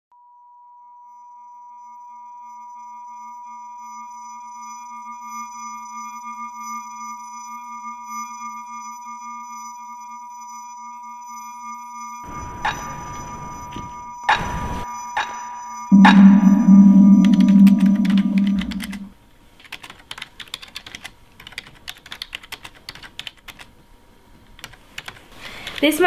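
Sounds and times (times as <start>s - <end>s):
faint high ringing tones: 11.2s - 19.1s
high pure synth tone: 15.4s - 19.1s
low wavering hum: 15.9s - 19.1s.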